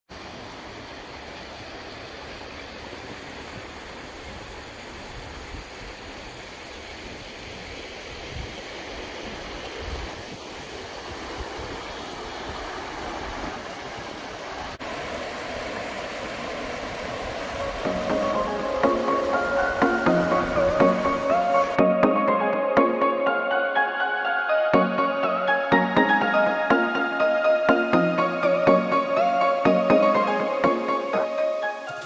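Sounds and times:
water rushing over rocks: 0.1s - 21.8s
steady outdoor hiss: 0.1s - 21.9s, 22.8s - 32.0s
wind rumbling on microphone: 7.4s - 18.6s.

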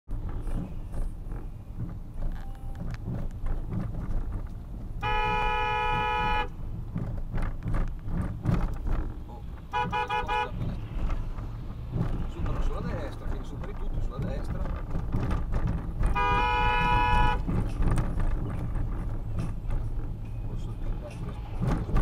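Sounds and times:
road and engine rumble: 0.1s - 22.0s
short horn toots: 5.0s - 6.5s, 16.1s - 17.4s
vehicle horn blast: 5.0s - 6.6s, 9.7s - 10.6s, 16.1s - 17.5s.

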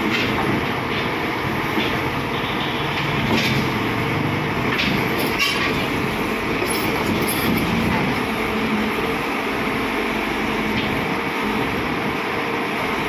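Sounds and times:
excavator diesel engine: 0.0s - 13.0s
steel tracks clanking: 4.7s - 8.2s.

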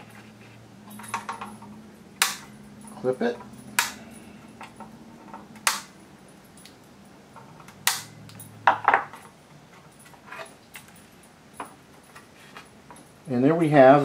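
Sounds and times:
wire cutters snipping leads: 2.2s - 4.8s, 5.6s - 6.0s, 7.6s - 8.4s.

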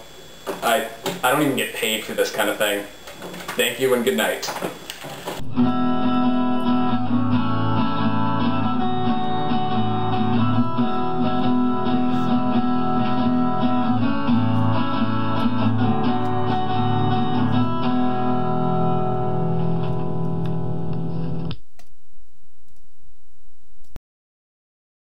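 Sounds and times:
plucked and strummed guitar: 5.4s - 21.5s.

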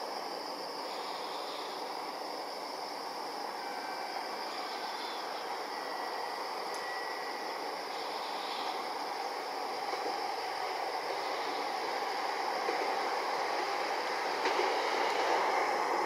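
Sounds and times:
distant locomotive hiss: 0.0s - 16.0s
faint thin high tone: 5.8s - 7.4s.

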